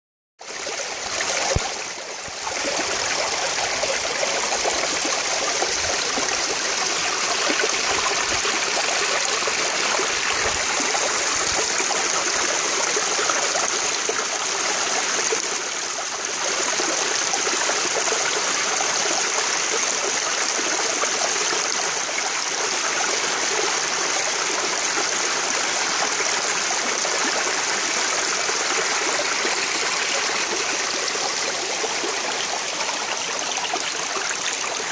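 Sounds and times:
creek trickling over stones: 0:00.4 - 0:34.9.

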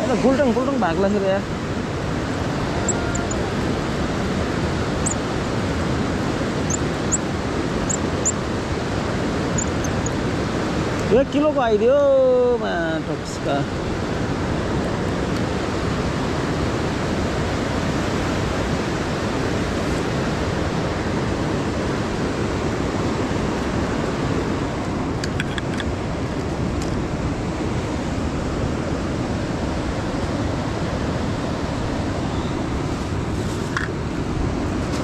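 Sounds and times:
river rushing over rocks: 0:00.0 - 0:25.2.

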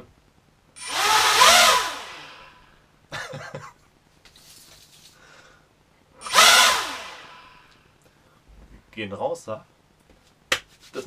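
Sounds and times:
electric motors whining: 0:00.8 - 0:02.6, 0:06.2 - 0:07.7.

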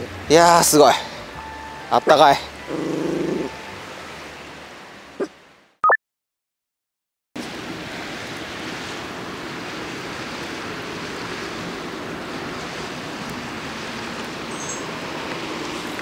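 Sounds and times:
faint fire crackles: 0:07.4 - 0:16.0.

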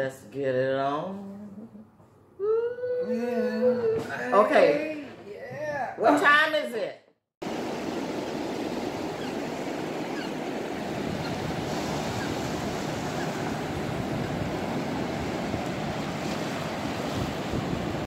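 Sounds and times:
ocean waves breaking on beach: 0:07.4 - 0:18.0.

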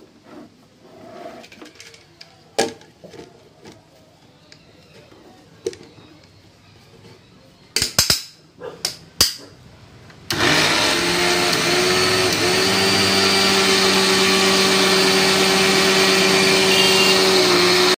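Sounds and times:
mixer grinder motor running: 0:10.3 - 0:18.0.

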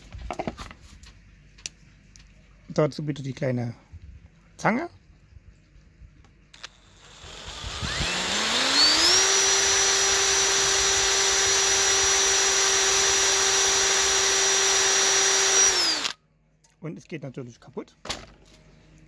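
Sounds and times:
drill press motor whine: 0:06.6 - 0:16.2.

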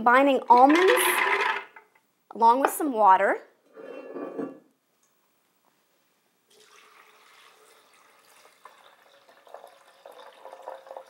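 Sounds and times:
water pouring into blender jar: 0:06.5 - 0:11.0.

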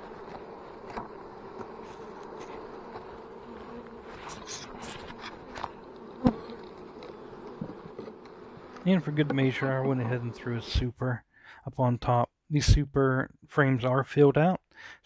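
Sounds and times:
bees humming: 0:00.0 - 0:10.8.

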